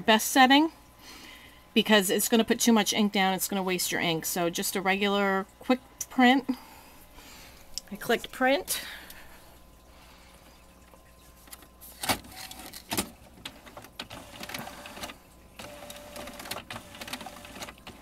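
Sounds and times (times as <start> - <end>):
printer motors whirring: 12.7 - 18.0
printer clicks: 12.9 - 18.0.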